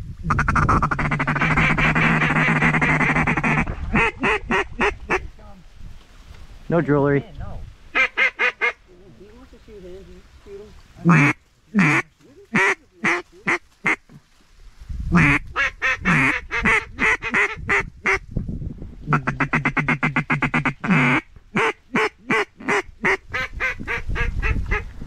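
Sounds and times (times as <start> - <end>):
low wind rumble on microphone: 0.0 - 8.0, 14.5 - 21.6, 22.8 - 25.0
duck call quacks: 0.3 - 5.2, 8.0 - 8.8, 11.0 - 14.0, 15.2 - 18.2, 19.1 - 24.9.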